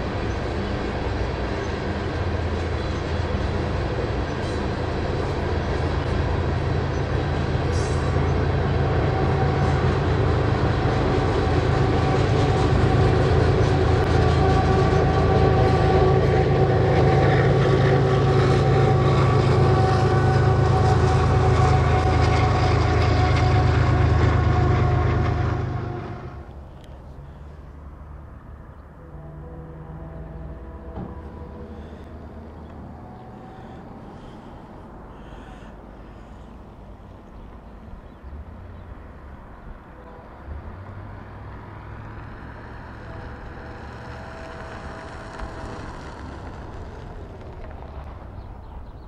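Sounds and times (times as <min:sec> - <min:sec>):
train wheels clattering on rails: 0:00.0 - 0:26.6, 0:42.0 - 0:49.0
diesel locomotive engine drone: 0:00.0 - 0:49.0.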